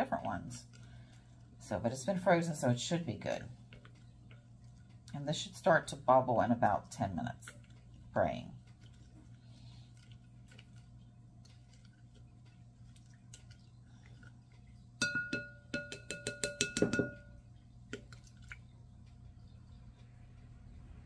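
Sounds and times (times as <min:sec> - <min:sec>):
spoon clinking against glass: 0:15.0 - 0:17.4
low hum: 0:16.9 - 0:21.0.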